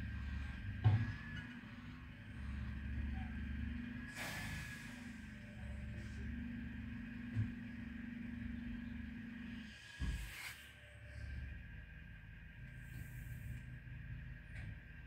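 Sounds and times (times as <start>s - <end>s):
diesel engine idling: 0.0s - 15.0s
air hiss: 4.2s - 5.0s.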